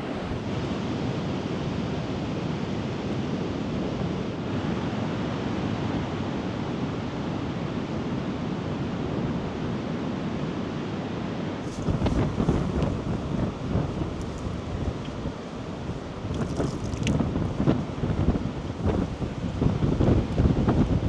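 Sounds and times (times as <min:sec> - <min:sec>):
waves breaking on shore: 0:00.0 - 0:21.0
wind buffeting microphone: 0:11.6 - 0:21.0.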